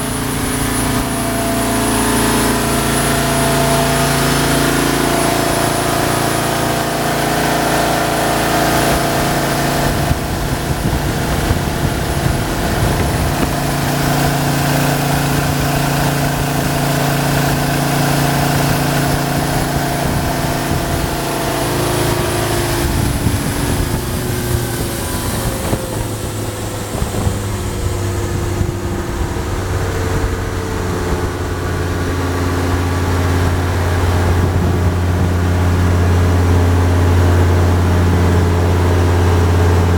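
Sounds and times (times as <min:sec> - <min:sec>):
boat diesel engine running: 0:00.0 - 0:39.9
water jet rushing and spray: 0:00.0 - 0:39.9.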